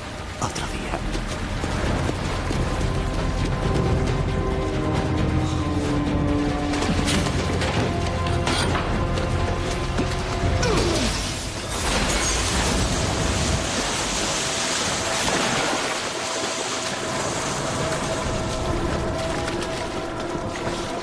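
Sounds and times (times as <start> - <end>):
dramatic score music: 0.0 - 21.0
water gushing: 9.5 - 21.0.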